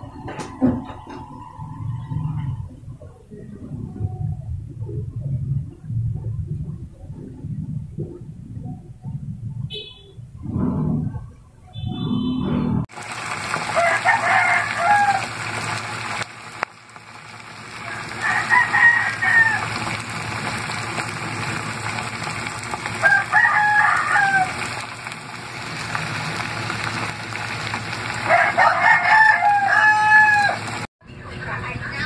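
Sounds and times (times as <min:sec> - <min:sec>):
food sizzling in pan: 0:12.9 - 0:30.9
rooster crowing: 0:13.7 - 0:15.4, 0:17.8 - 0:19.8, 0:23.0 - 0:24.7, 0:28.2 - 0:30.8.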